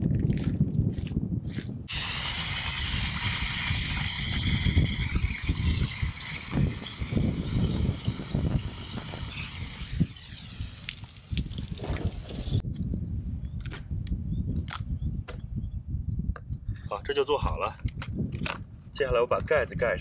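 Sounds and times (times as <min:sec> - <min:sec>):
hose water hissing into jug: 0:01.9 - 0:12.6.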